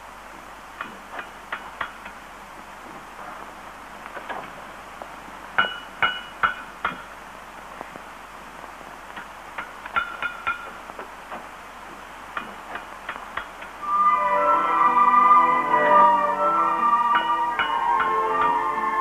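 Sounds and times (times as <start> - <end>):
hammer striking an anvil: 5.6 - 7.0, 9.9 - 10.7.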